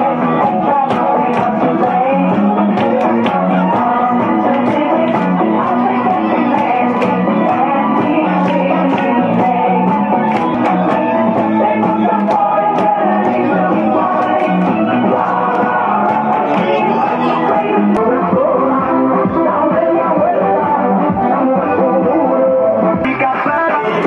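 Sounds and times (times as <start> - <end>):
music with steady beat over loudspeakers: 0.0 - 24.0.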